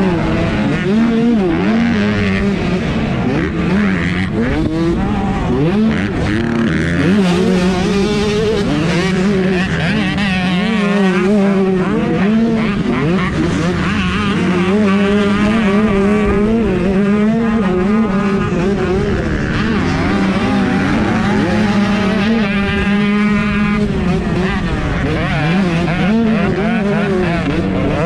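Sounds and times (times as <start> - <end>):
motocross bike engines revving: 0.0 - 28.0.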